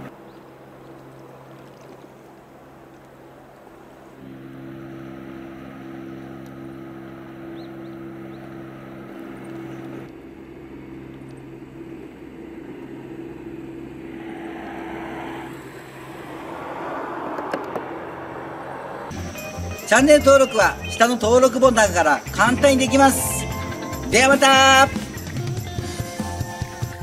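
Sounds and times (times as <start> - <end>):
hiss of wind and water: 0.0 - 4.2, 12.5 - 19.1
ship machinery low drone: 0.0 - 25.4.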